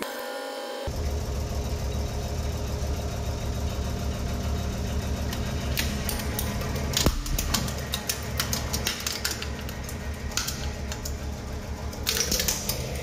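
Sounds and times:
hydraulic pump motor hum: 0.8s - 13.0s
plastic cracking and clicking: 5.8s - 11.2s, 11.9s - 13.0s.

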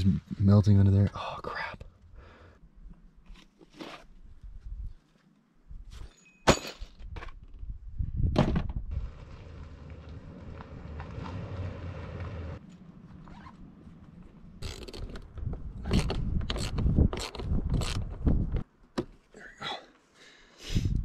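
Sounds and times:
gear clunks and scrapes: 9.0s - 18.6s.

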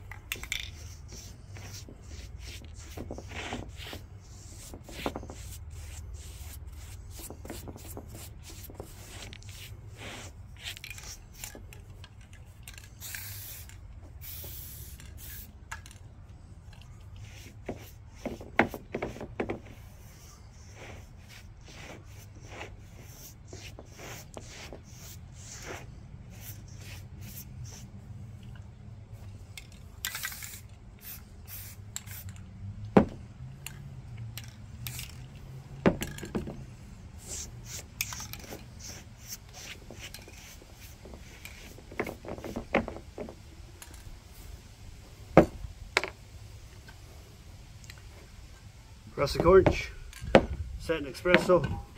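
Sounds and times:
spray paint can hissing: 0.0s - 16.0s, 17.1s - 28.0s, 29.4s - 32.4s, 34.4s - 36.2s, 36.8s - 43.0s.

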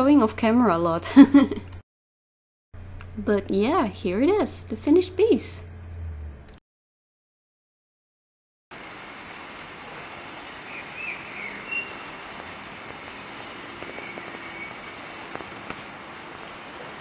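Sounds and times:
background rush: 8.8s - 17.0s
bird chirps: 10.6s - 12.2s, 13.4s - 15.1s.

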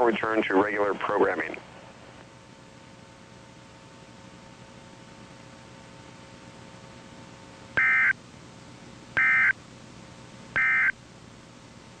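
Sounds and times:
faint radio hiss: 0.0s - 12.0s
digital data tone bursts: 7.8s - 8.1s, 9.2s - 9.5s, 10.6s - 10.9s.

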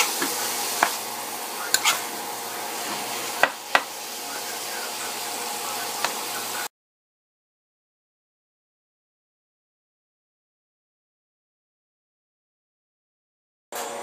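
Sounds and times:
meat sizzling in a frying pan: 0.0s - 6.7s.

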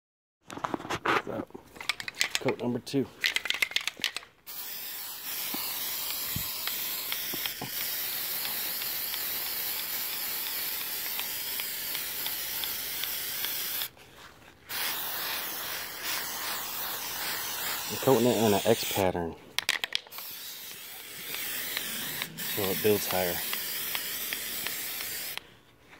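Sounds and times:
aerosol can spraying: 4.5s - 13.9s, 14.7s - 19.2s, 20.1s - 25.4s.

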